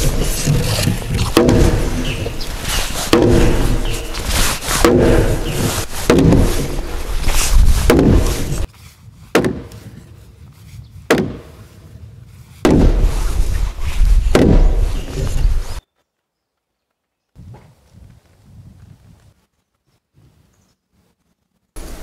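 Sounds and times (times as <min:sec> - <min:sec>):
wooden mallet pounding timber: 0:00.0 - 0:02.4, 0:03.0 - 0:08.7, 0:09.3 - 0:09.8, 0:11.1 - 0:11.4, 0:12.6 - 0:13.1, 0:14.2 - 0:15.0.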